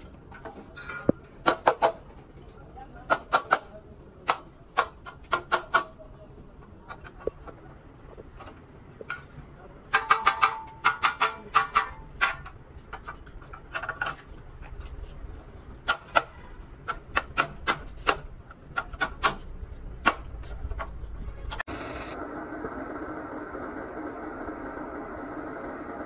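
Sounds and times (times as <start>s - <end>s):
hammer striking metal: 9.9s - 12.5s.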